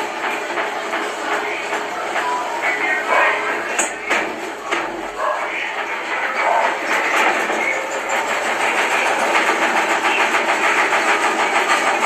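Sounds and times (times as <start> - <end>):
washing machine tub clattering: 3.1 - 12.0.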